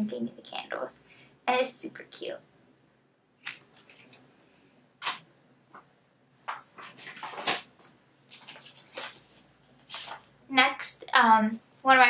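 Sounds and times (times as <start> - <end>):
paper rustling and bumps: 6.4 - 10.3.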